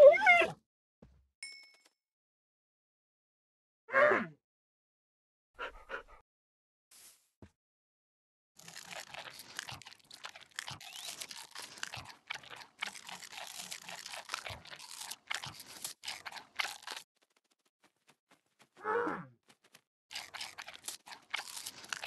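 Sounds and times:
panda chewing bamboo: 8.6s - 17.6s, 20.1s - 22.0s.

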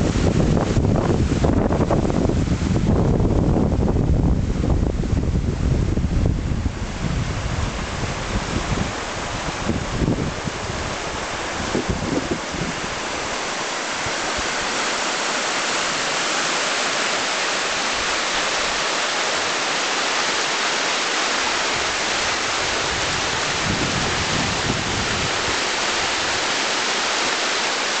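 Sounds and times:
wind buffeting microphone: 0.0s - 15.1s, 21.7s - 26.4s
river rushing over stones: 0.0s - 28.0s.

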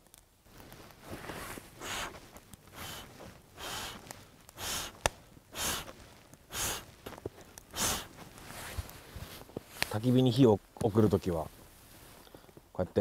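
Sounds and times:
breath blown through cupped hands: 1.7s - 7.0s, 7.7s - 8.7s.

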